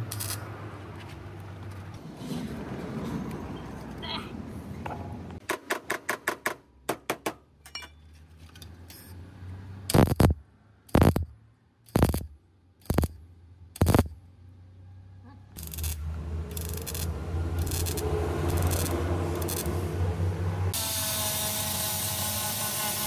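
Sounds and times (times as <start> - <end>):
welder tack welds: 0.0 - 0.5, 9.9 - 11.3, 11.9 - 13.2, 13.8 - 14.2, 15.6 - 19.8, 20.7 - 23.0.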